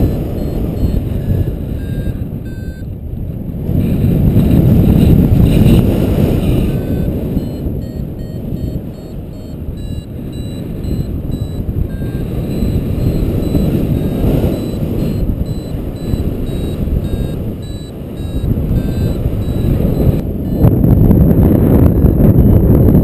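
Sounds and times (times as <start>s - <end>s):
electronic beeps: 0.0s - 2.9s, 6.4s - 20.9s
wind buffeting microphone: 0.0s - 23.0s.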